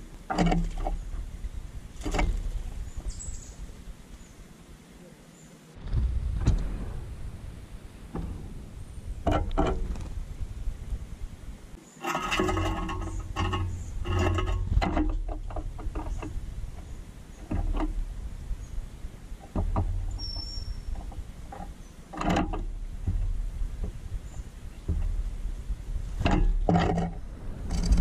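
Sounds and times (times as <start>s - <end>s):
claws scraping on metal cage: 0.3s - 3.6s, 9.0s - 28.0s
bird wings beating: 5.8s - 11.8s
low rumble: 5.8s - 11.8s, 22.8s - 28.0s.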